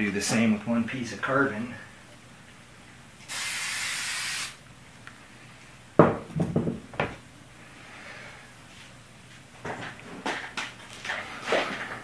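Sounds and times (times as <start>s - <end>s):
aerosol spray hiss: 3.3s - 4.6s
sharp knocks: 6.0s - 7.2s.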